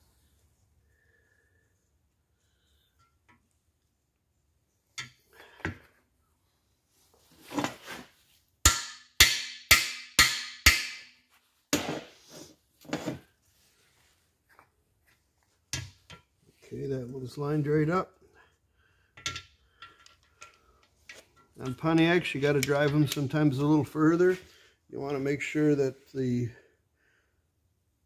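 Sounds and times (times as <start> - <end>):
hammer striking metal bar: 8.6 - 11.2.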